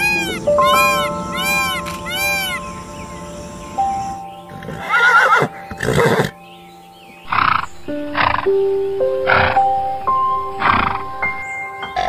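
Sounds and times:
background music with held notes: 0.0s - 12.0s
horse neighing: 4.6s - 6.3s.

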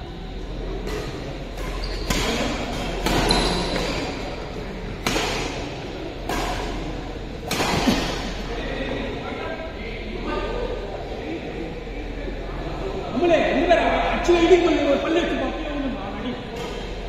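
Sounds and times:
hall background noise: 0.0s - 17.0s
rackets hitting shuttlecock: 0.8s - 4.2s, 5.0s - 8.4s.

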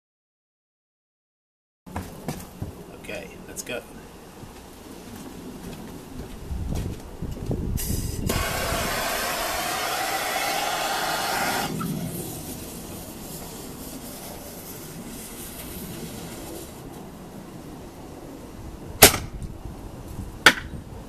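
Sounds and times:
gas blowtorch hissing: 7.8s - 17.0s
fuse burning with faint hiss: 7.8s - 18.5s.

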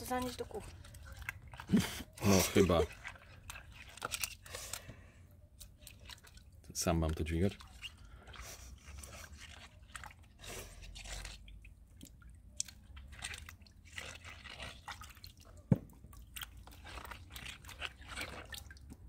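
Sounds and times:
cucumbers squeaking and rubbing: 0.0s - 4.8s, 7.3s - 11.5s, 16.5s - 18.8s
water splashing and dripping: 0.0s - 4.8s, 5.5s - 19.0s.

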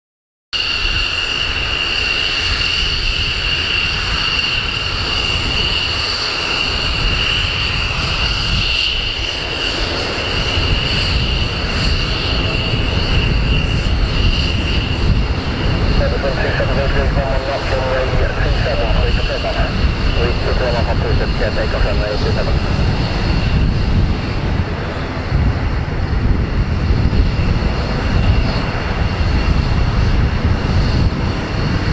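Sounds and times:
jet engine whining: 0.6s - 31.9s
low rumble: 13.9s - 31.5s.

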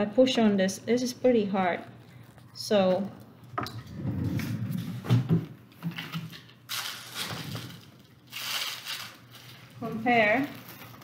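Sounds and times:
plastic packaging crinkling: 5.6s - 11.0s.

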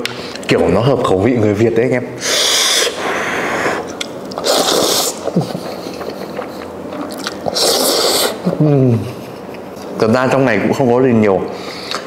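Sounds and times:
loud hissy noodle slurp: 2.2s - 5.3s, 7.4s - 8.5s
soft chewing: 3.8s - 8.5s.

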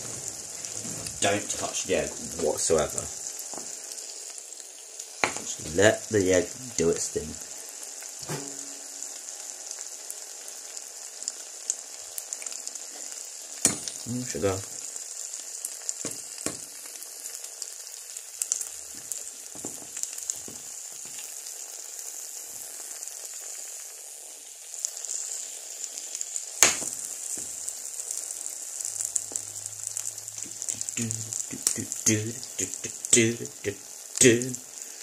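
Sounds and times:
egg sizzling in a pan: 0.0s - 35.0s
spatula tapping a pan: 8.2s - 8.8s, 13.6s - 14.0s, 16.0s - 16.7s, 19.6s - 19.9s, 26.6s - 27.5s
pan knocking on a hob: 8.2s - 8.9s.

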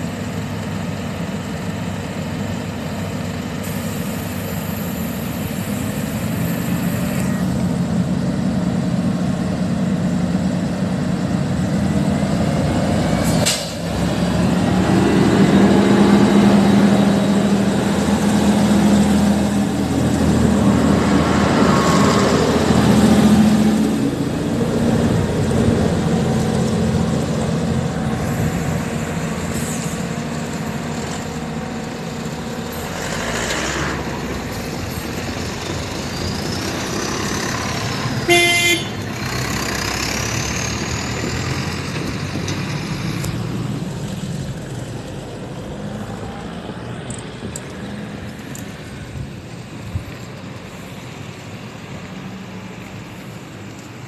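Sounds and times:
diesel railcar engine: 0.0s - 54.0s
train horn toot: 38.2s - 39.0s.

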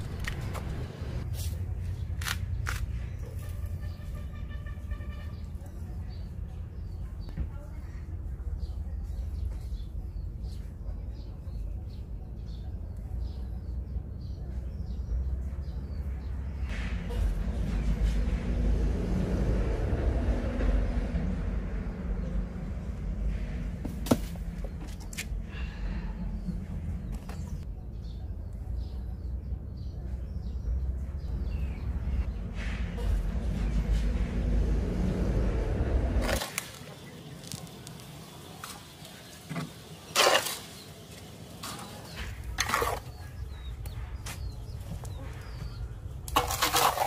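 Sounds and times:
steady low rumble: 5.8s - 36.4s.

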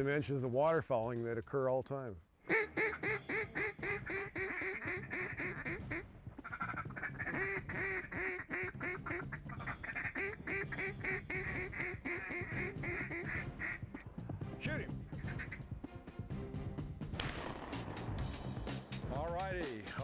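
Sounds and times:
duck call quacks: 2.4s - 14.1s, 15.1s - 15.7s.

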